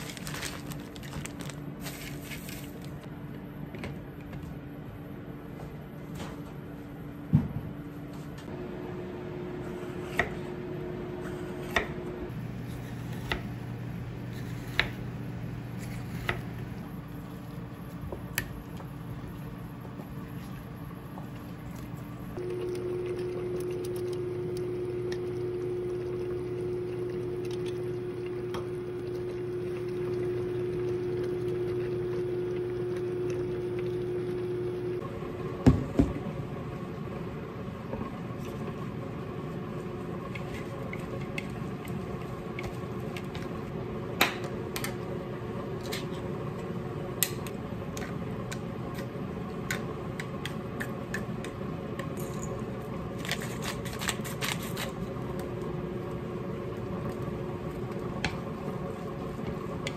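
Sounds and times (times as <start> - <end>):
cooktop electrical hum: 0.0 - 59.9
stew simmering in a pot: 16.4 - 35.5.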